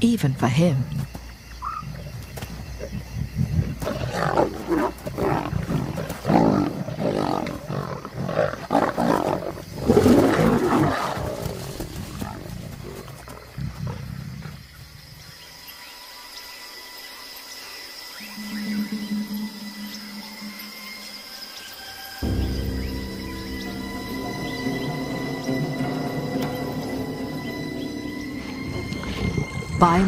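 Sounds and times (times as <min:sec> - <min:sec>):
lions snarling and roaring: 0:01.6 - 0:15.4.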